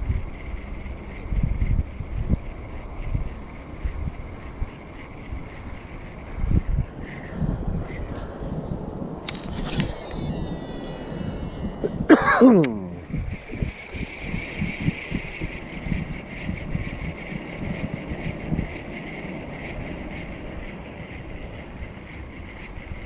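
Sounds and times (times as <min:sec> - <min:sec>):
wind noise on microphone: 0:00.0 - 0:23.0
fishing reel spool whining: 0:09.2 - 0:23.0.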